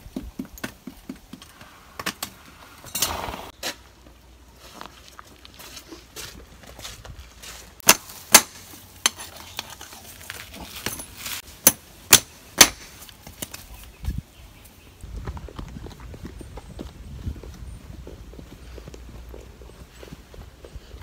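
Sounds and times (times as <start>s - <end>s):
hammer striking horseshoe nails: 7.8s - 9.2s, 11.6s - 13.0s.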